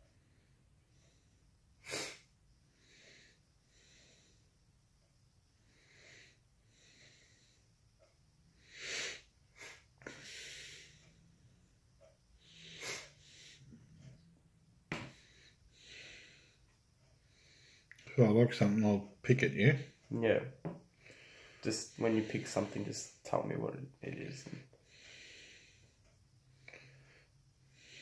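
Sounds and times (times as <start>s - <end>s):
man breathing: 5.5s - 18.1s, 19.9s - 23.2s, 24.4s - 28.0s.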